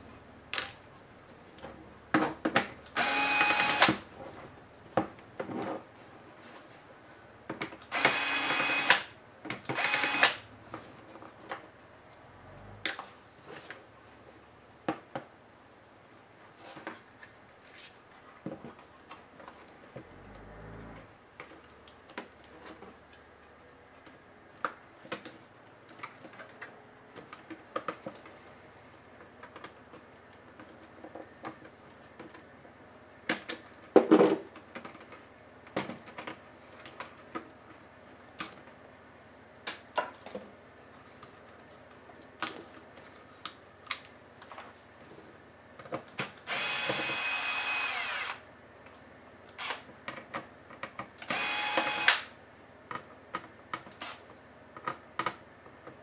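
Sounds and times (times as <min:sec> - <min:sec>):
electric screwdriver running: 0:03.0 - 0:04.0, 0:07.9 - 0:09.0, 0:09.7 - 0:10.4, 0:46.5 - 0:48.4, 0:49.6 - 0:49.8, 0:51.3 - 0:52.2.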